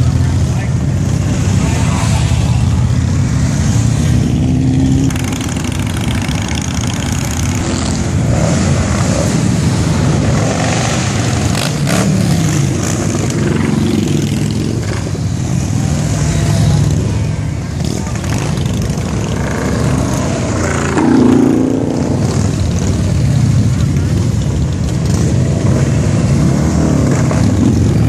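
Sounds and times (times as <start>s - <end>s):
motorcycles and cars passing: 0.0s - 28.0s.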